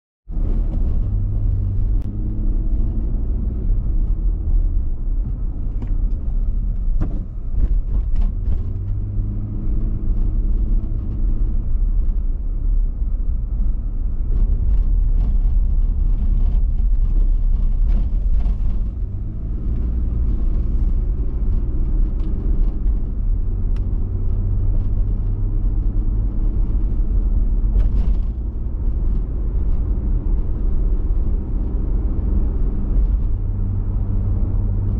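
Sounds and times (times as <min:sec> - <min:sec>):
car engine and road rumble: 0:00.2 - 0:34.9.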